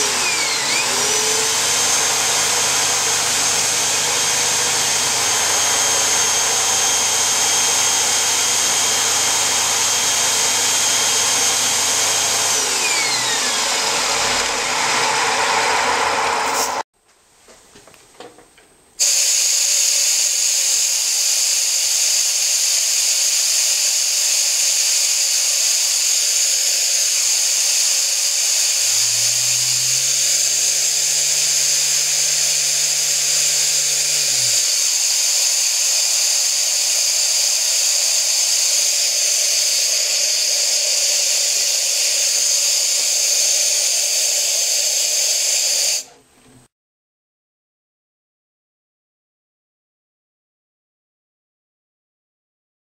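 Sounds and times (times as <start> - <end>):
turbine high whine: 0.0 - 16.8, 23.9 - 45.7.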